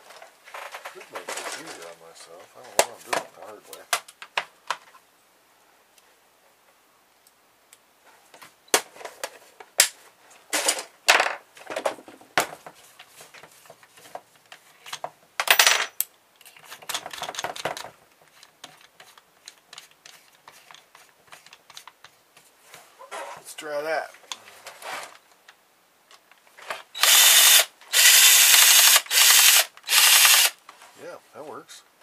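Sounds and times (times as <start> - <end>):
screws rattling: 26.8 - 30.6.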